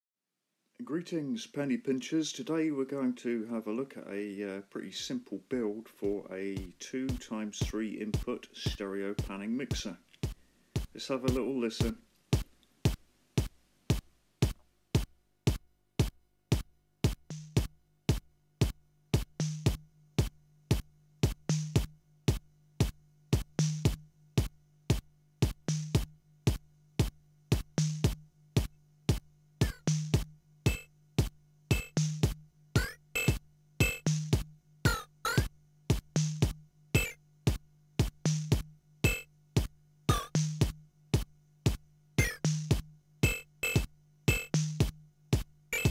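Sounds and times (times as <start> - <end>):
percussive synth clicks: 28.6 - 45.9.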